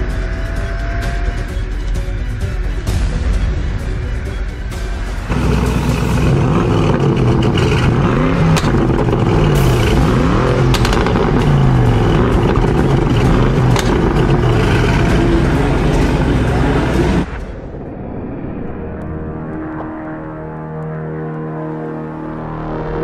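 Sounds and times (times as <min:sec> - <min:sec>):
car engine revving: 0:05.2 - 0:17.4
exhaust cracks: 0:05.3 - 0:17.4.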